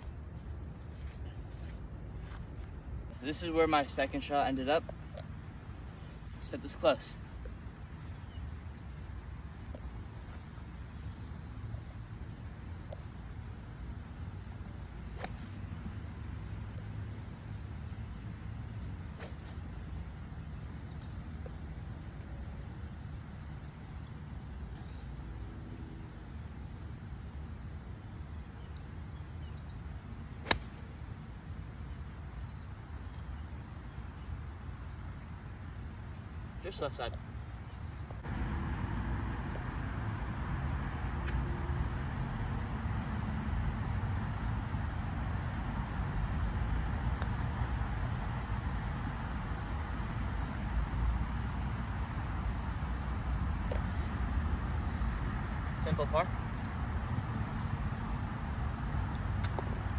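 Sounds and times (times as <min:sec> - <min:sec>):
golf club striking ball: 0:30.4 - 0:30.8.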